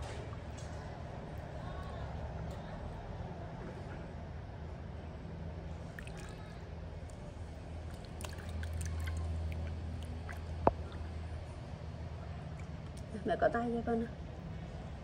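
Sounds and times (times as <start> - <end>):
low steady hum: 0.0 - 15.0
water sloshing and trickling: 5.7 - 13.3.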